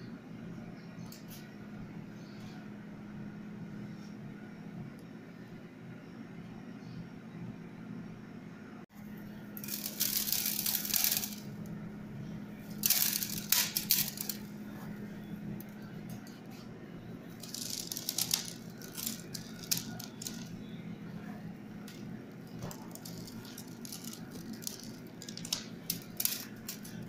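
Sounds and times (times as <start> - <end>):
salt pattering on metal: 9.6 - 11.5, 12.7 - 14.4, 17.4 - 20.6, 22.8 - 27.0.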